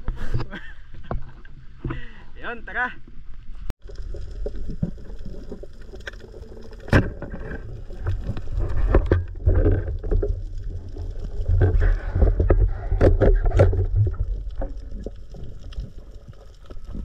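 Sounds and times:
underwater rumble of moving water: 3.2s - 17.0s.

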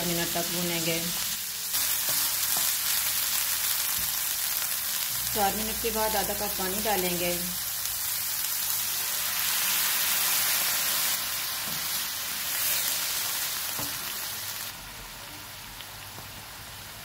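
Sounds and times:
meat sizzling in a frying pan: 0.0s - 17.0s.

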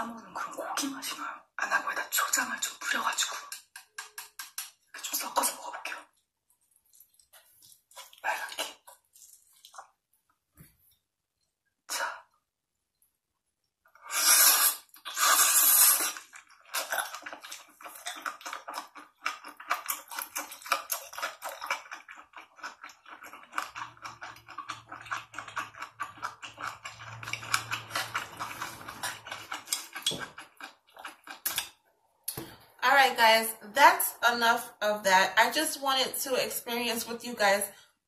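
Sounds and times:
wet chewing and crackling: 1.8s - 10.5s, 13.9s - 32.0s.

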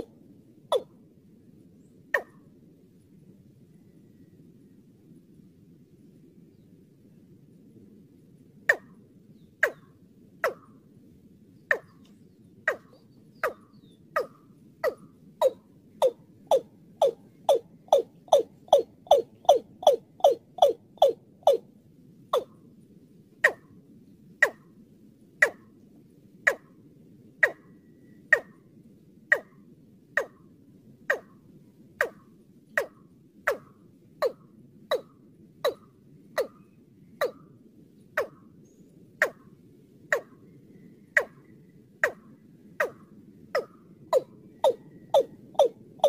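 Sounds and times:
bird calling sharp notes: 0.7s - 0.9s, 9.6s - 10.7s, 12.7s - 21.6s, 43.6s - 46.0s.

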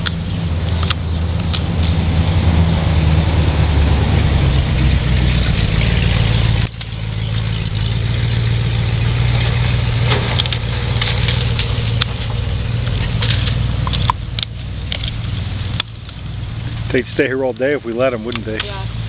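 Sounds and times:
engine idling: 0.0s - 19.0s
sharp crackles: 4.6s - 19.0s.

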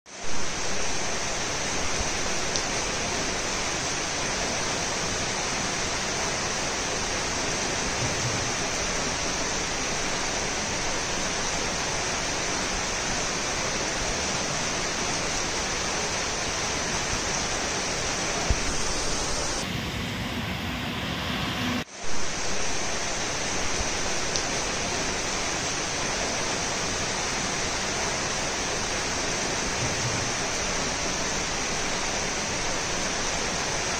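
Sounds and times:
heavy rain falling: 0.1s - 19.6s, 21.8s - 33.9s.

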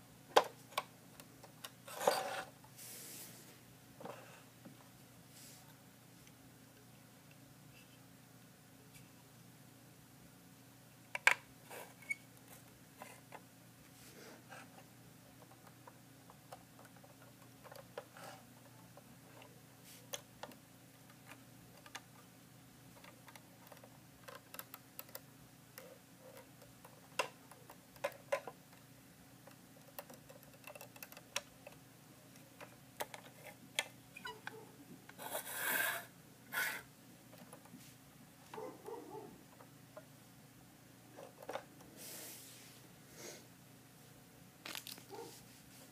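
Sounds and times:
plastic bricks clicking: 29.5s - 31.8s
rustling scrape: 41.9s - 42.9s.

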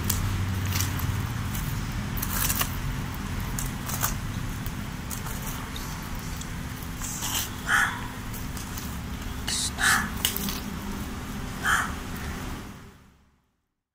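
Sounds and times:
hand scraping soil: 0.0s - 2.9s, 3.5s - 4.3s, 5.1s - 10.6s.

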